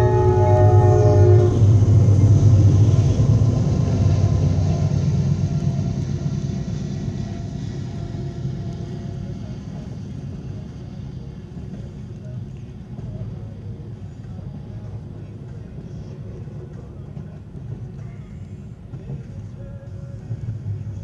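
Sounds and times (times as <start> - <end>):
train air horn: 0.0 - 2.0
freight train passing: 0.0 - 21.0.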